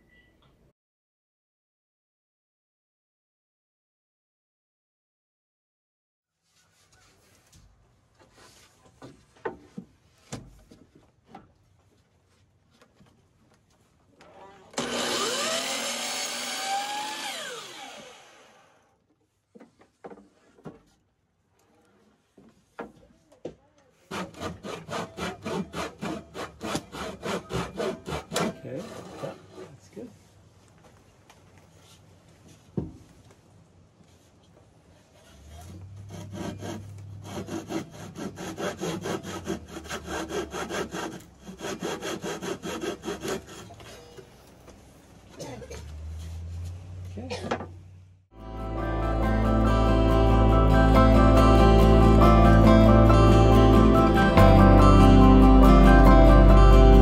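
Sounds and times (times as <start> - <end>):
miter saw cutting wood: 14.7 - 18.8, 24.1 - 29.8, 35.8 - 44.1
saw motor winding down: 14.7 - 18.8.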